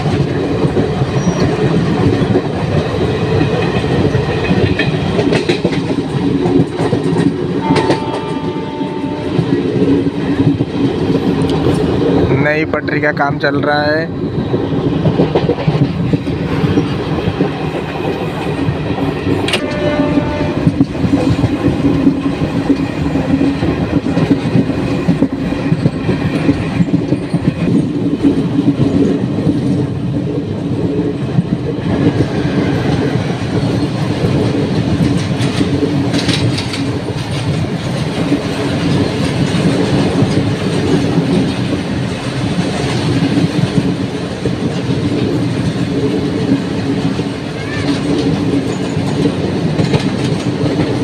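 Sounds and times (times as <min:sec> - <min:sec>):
train wheels clattering over rail joints: 0:00.0 - 0:12.3, 0:14.3 - 0:51.0
freight train rushing past: 0:00.0 - 0:51.0
train rumble: 0:00.0 - 0:51.0
train horn: 0:07.6 - 0:09.6, 0:19.5 - 0:21.0.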